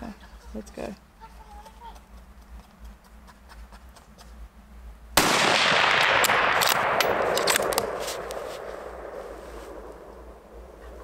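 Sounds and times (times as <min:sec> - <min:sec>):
rifle shot ringing: 0:05.2 - 0:10.7
rifle bolt clicks: 0:06.0 - 0:08.4.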